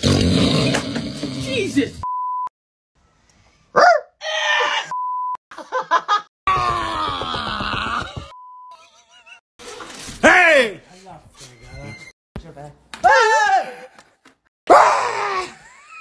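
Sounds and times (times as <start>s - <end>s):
censor bleeps: 2.0s - 2.5s, 4.9s - 5.4s
people yelling and shouting: 6.5s - 8.4s, 10.2s - 10.9s, 13.0s - 14.0s.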